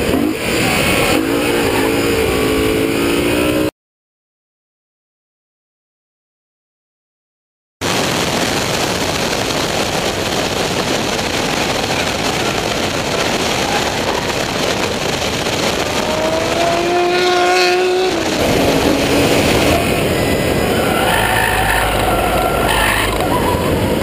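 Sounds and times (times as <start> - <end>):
car engine at racing speed: 0.0 - 3.7, 10.3 - 24.0
wind and road noise: 0.0 - 3.7, 7.8 - 24.0
tyre squeal: 20.6 - 24.0.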